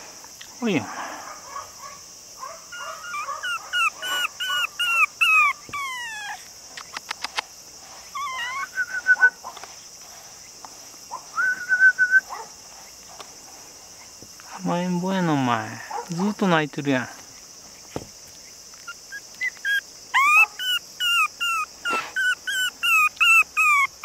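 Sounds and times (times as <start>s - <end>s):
puppy whining and crying: 2.8s - 6.5s, 8.1s - 9.3s, 18.8s - 24.0s.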